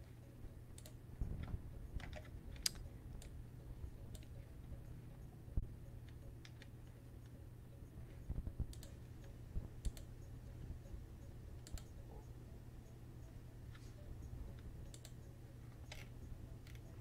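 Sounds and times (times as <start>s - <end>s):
steady low hum: 0.0s - 17.0s
computer clicks: 0.7s - 3.4s, 4.0s - 4.5s, 8.3s - 10.3s, 11.5s - 12.4s, 14.5s - 17.0s.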